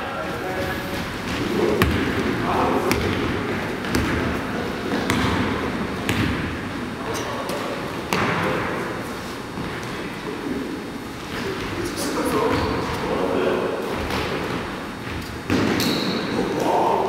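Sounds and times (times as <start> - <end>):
basketball dribbled on hardwood floor: 1.2 - 2.3, 2.9 - 6.5.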